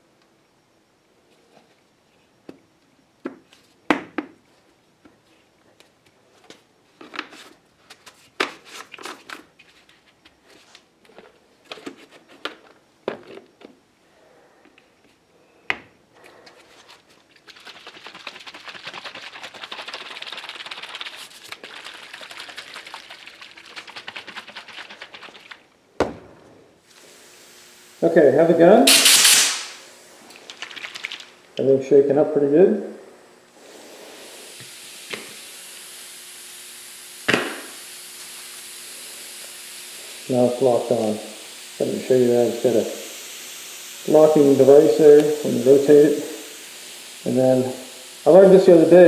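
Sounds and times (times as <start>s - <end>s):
cup rattling as shaken: 17.3s - 25.6s, 30.5s - 31.2s.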